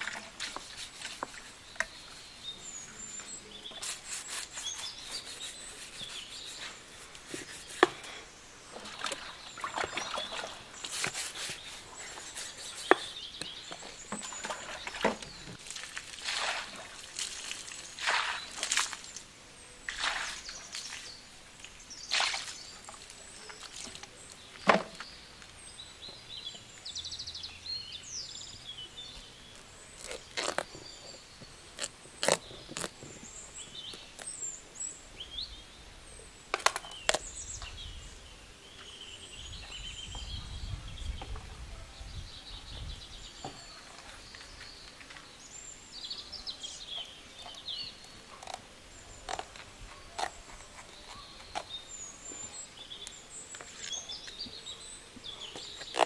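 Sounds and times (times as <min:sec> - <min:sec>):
birds chirping: 0:00.0 - 0:56.0
knife cutting into pumpkin: 0:03.6 - 0:08.1.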